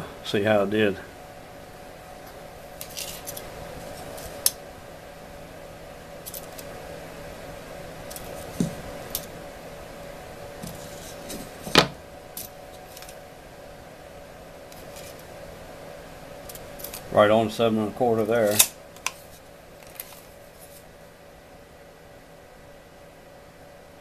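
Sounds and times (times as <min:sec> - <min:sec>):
steady hum: 0:00.0 - 0:24.0.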